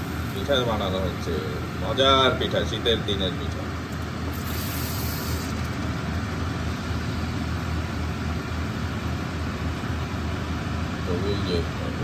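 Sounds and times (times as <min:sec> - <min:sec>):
food frying in hot oil: 0:03.8 - 0:11.2.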